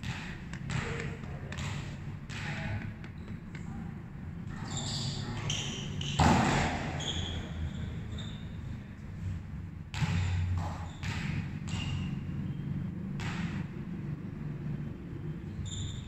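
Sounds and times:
volleyball bouncing on hard floor: 0.0 - 3.7, 5.5 - 7.4, 9.9 - 13.9
loud ball smack: 6.2 - 7.0.

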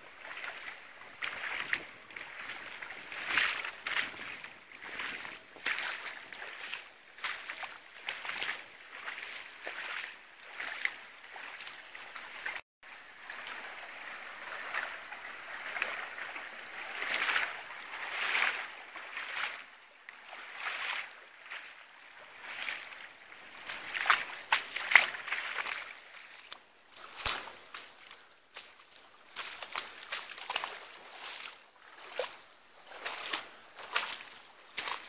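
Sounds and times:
footsteps splashing through water: 0.0 - 35.0.

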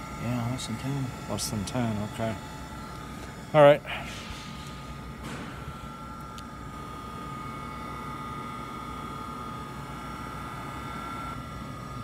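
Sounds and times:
grinder motor humming and whining: 0.0 - 3.8, 5.0 - 12.0.

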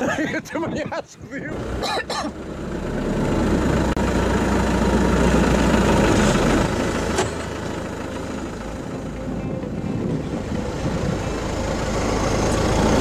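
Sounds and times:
engine running close by: 1.4 - 13.0.

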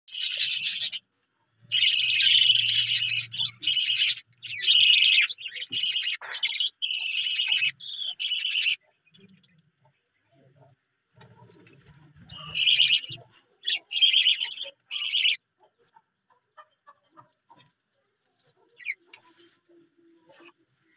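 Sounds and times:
budgerigars chattering: 0.1 - 1.0, 1.6 - 9.4, 12.2 - 17.6, 18.4 - 19.5.

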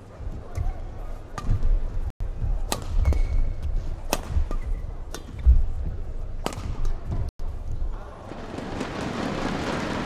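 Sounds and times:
rackets striking shuttlecock: 2.6 - 5.5, 6.4 - 7.1.

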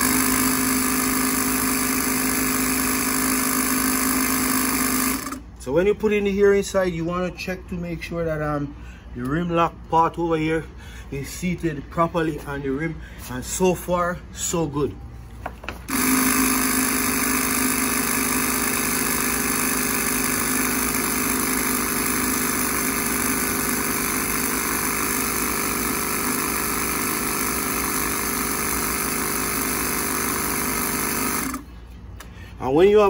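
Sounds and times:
air compressor running: 0.0 - 5.8, 15.4 - 32.8.

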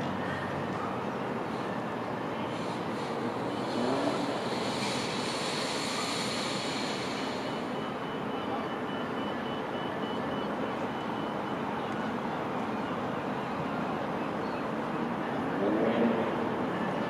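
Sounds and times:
distant road traffic: 0.0 - 17.0
railway: 0.0 - 17.0.

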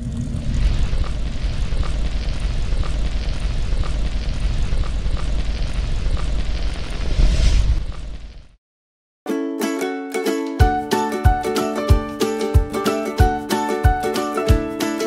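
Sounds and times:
rumbling cinematic sound effect: 0.0 - 8.6.

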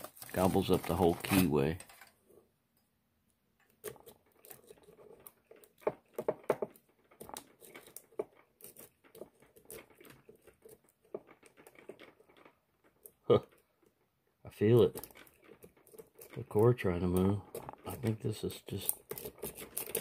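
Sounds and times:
lock pick scraping and clicking: 3.6 - 13.7, 14.9 - 20.0.

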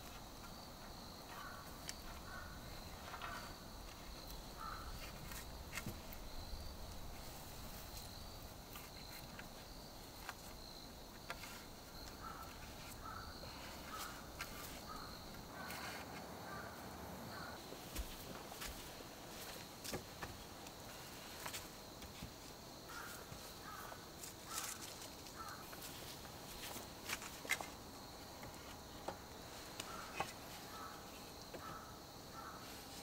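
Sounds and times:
high insect drone: 0.0 - 33.0
bird calls: 1.3 - 5.4, 11.3 - 17.6.

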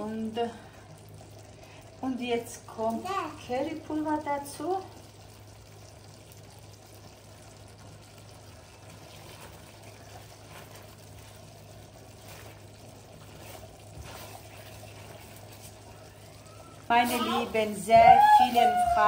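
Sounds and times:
wet swishing of stirred sauce: 8.9 - 16.0.

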